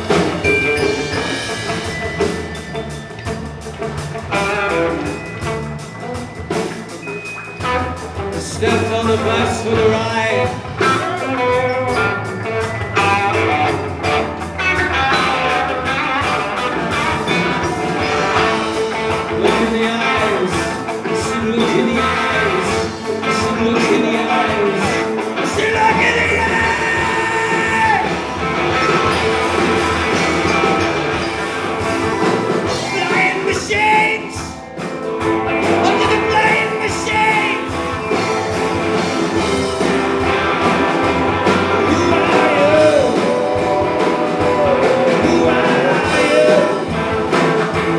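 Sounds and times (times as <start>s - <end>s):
bass guitar: 0.0s - 47.9s
drum kit: 0.0s - 47.9s
electric guitar: 0.0s - 47.9s
person singing: 8.4s - 12.1s, 15.1s - 28.3s, 32.6s - 34.6s, 35.7s - 38.3s, 41.4s - 47.4s.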